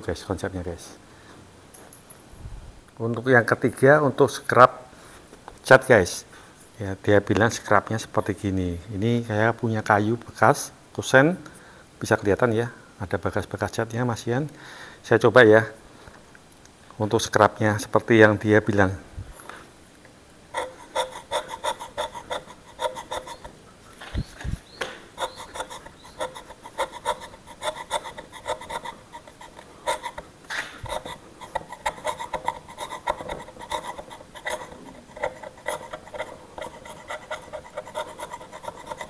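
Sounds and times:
chisel scraping painted wood: 20.5 - 23.6, 25.1 - 39.0.

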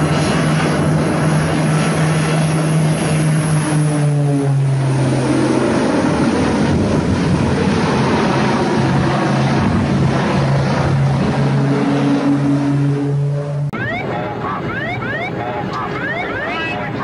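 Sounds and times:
propeller plane engines droning: 0.0 - 17.0
constant rushing noise: 13.7 - 17.0.

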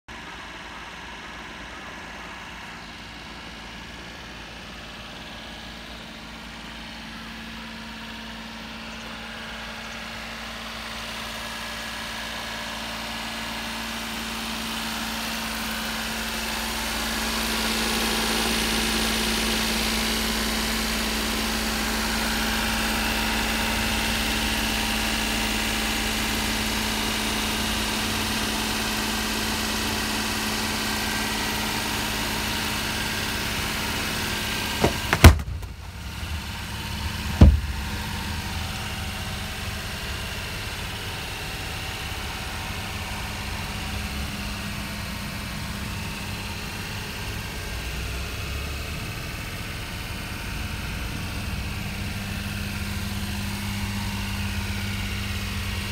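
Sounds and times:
truck engine idling: 0.2 - 55.9.

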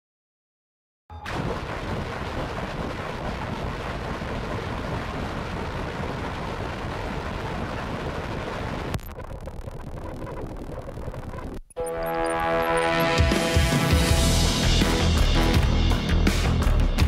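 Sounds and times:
steady rumbling noise: 1.3 - 14.6.

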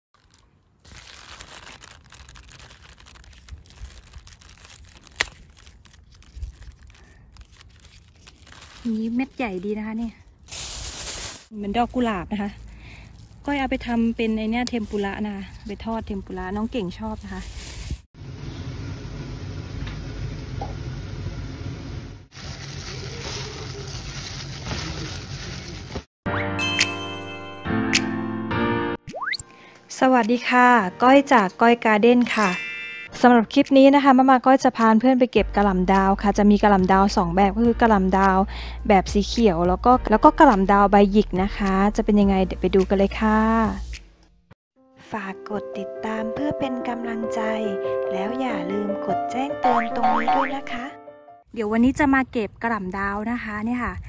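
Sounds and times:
leaves rustling and crinkling: 0.2 - 18.1, 22.3 - 26.1
sprout snapping off stalk: 1.4 - 9.4
greens tossed in plastic colander: 22.4 - 26.1.

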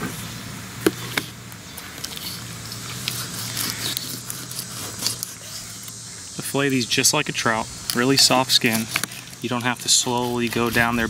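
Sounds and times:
steady low hum: 0.0 - 11.0
knife scraping fish: 2.0 - 6.0, 7.9 - 11.0.

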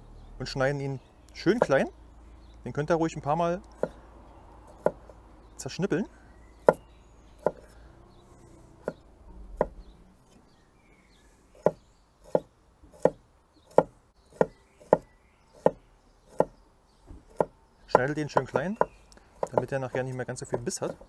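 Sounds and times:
knife chopping on cutting board: 11.6 - 16.5, 17.3 - 19.7.

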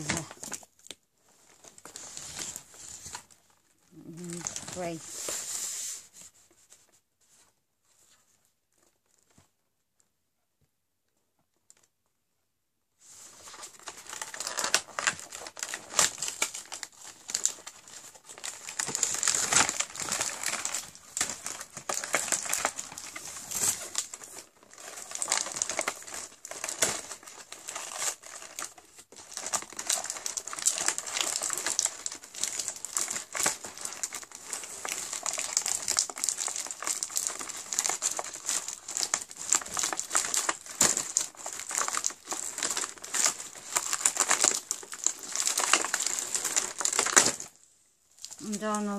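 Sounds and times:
cardboard rustling and tearing: 1.4 - 3.4, 4.1 - 6.1, 13.2 - 47.6.

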